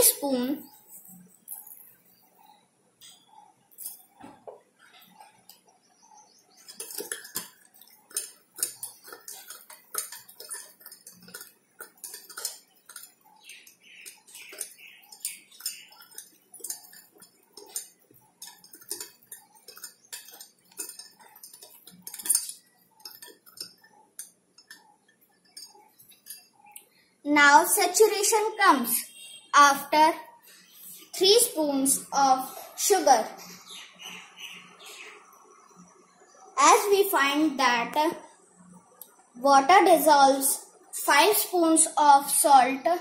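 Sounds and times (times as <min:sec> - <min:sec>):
spoon clinking against glass: 0:06.6 - 0:26.6.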